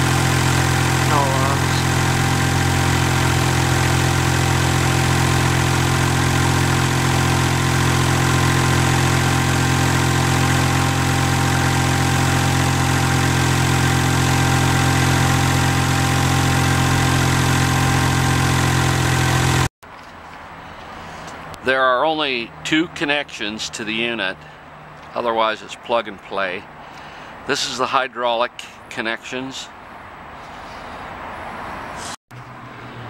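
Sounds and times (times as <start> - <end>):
engine running steadily: 0.0 - 21.7, 22.4 - 25.1, 26.6 - 27.4.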